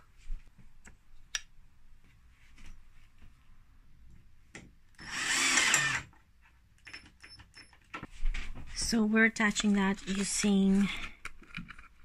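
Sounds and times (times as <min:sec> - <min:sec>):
drill driving screw into metal: 0:05.0 - 0:06.1.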